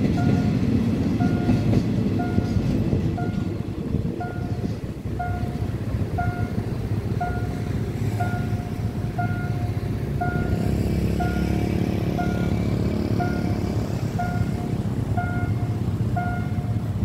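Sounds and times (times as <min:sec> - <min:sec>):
level crossing alarm beeping: 0:00.0 - 0:00.6, 0:01.2 - 0:02.6, 0:03.2 - 0:03.6, 0:04.2 - 0:06.6, 0:07.2 - 0:16.8
low rumble of engines: 0:00.0 - 0:17.0.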